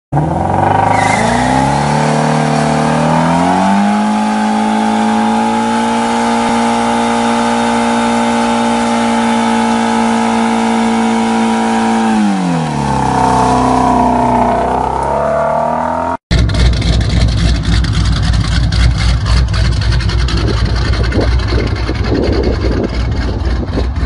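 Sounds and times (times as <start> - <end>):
car engine revving: 0.1 - 24.0.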